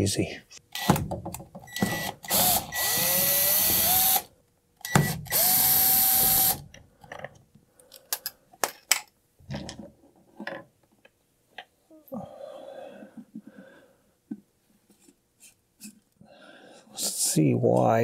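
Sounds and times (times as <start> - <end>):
small electric motor whirring: 1.8 - 4.3, 4.9 - 6.6.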